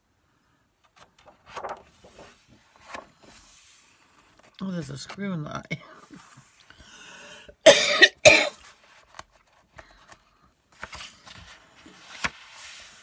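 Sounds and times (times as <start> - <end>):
person coughing: 7.6 - 8.6.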